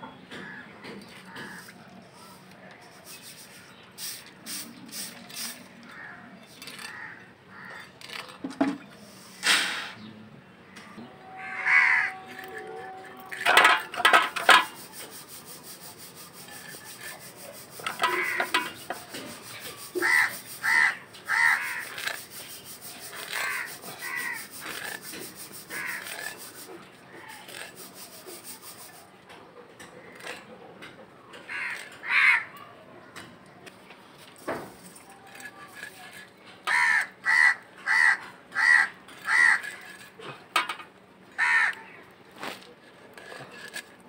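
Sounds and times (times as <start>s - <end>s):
crows cawing: 6.8s - 7.9s, 11.4s - 12.2s, 18.0s - 18.6s, 20.0s - 22.0s, 23.4s - 24.6s, 25.7s - 26.1s, 31.5s - 32.5s, 36.7s - 39.8s, 41.4s - 42.0s
knife scraping: 11.8s - 29.1s, 34.4s - 37.0s, 39.2s - 40.8s, 42.4s - 44.0s.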